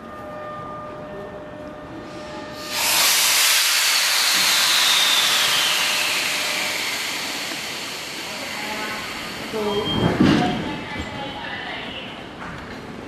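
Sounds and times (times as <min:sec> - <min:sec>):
air brakes hissing: 0:02.1 - 0:10.1.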